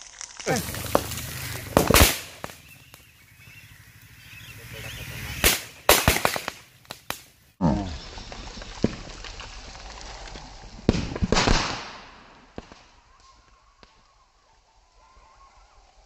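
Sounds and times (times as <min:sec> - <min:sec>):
steady hiss: 0:00.0 - 0:10.8
sharp bangs and pops: 0:00.3 - 0:03.2, 0:05.4 - 0:07.4, 0:08.5 - 0:09.6, 0:10.8 - 0:14.1.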